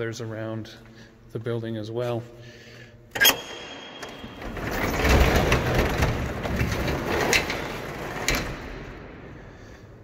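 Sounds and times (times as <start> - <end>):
door rattling rumble: 4.1 - 9.2.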